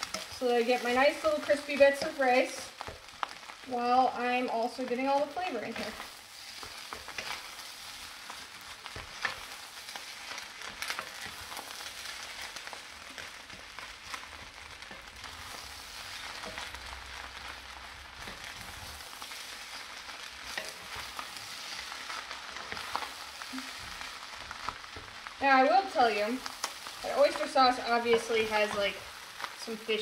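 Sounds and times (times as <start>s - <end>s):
rice sizzling in a wok: 0.0s - 30.0s
utensils scraping a pan: 5.7s - 7.7s, 18.2s - 24.0s.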